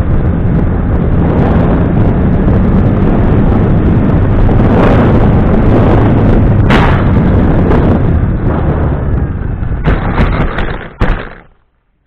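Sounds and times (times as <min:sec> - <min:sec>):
wind buffeting: 0:00.0 - 0:11.6
model airplane propeller: 0:00.0 - 0:12.0
plane crashing knocks and scrapes: 0:09.8 - 0:11.6.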